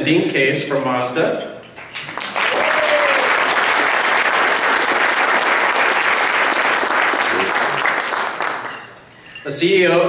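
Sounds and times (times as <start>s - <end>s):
audience applauding: 1.8s - 8.9s.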